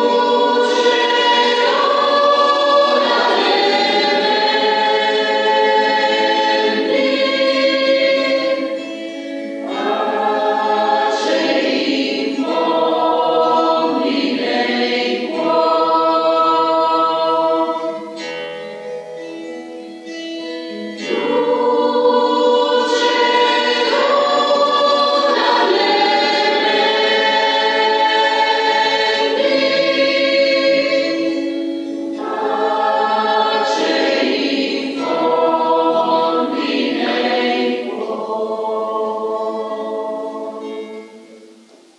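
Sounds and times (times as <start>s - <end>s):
mixed choir singing in harmony: 0.0s - 18.5s, 20.4s - 41.9s
acoustic guitar: 0.0s - 38.2s.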